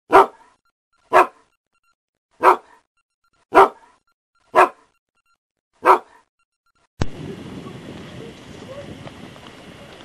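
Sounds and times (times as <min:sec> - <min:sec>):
dog barking: 0:00.1 - 0:01.5, 0:02.4 - 0:02.9, 0:03.5 - 0:04.9, 0:05.8 - 0:06.3.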